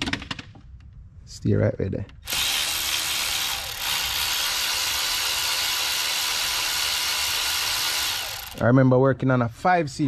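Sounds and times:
cordless power driver running: 0:02.2 - 0:08.6.

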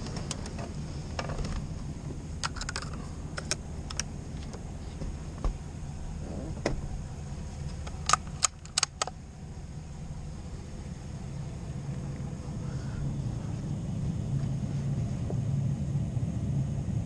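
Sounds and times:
truck engine running: 0:00.0 - 0:17.0
sharp clicks and knocks: 0:02.4 - 0:05.6, 0:07.7 - 0:09.2.

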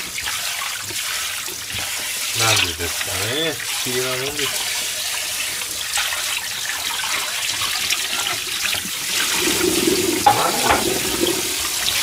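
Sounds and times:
pot being scrubbed: 0:00.2 - 0:12.0
kitchenware clink: 0:10.2 - 0:11.5
tap running into steel sink: 0:10.2 - 0:11.6.

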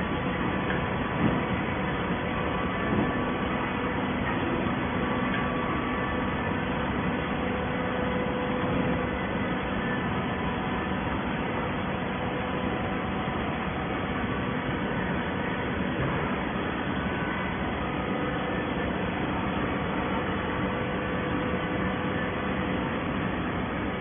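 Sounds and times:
hydraulic baler drone: 0:00.0 - 0:24.0.

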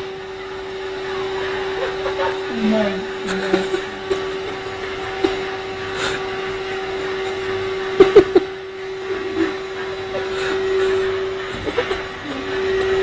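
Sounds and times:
vacuum cleaner whining: 0:00.0 - 0:13.0.

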